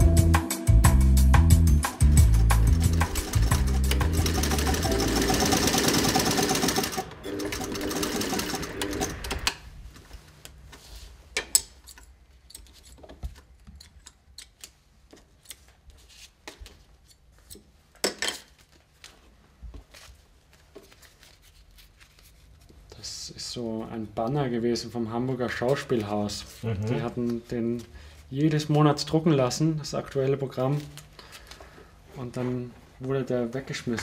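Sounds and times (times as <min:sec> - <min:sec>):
sewing machine clattering: 0:02.2 - 0:09.6.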